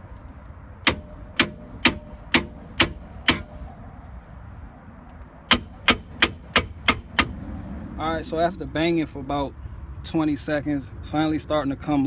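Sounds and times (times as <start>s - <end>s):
sledgehammer striking metal: 0.8s - 3.7s, 5.5s - 7.4s.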